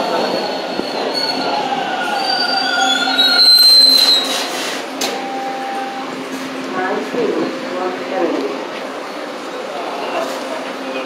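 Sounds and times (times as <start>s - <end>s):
wheels and brakes squealing: 0.0s - 4.9s
subway train braking: 0.0s - 11.0s.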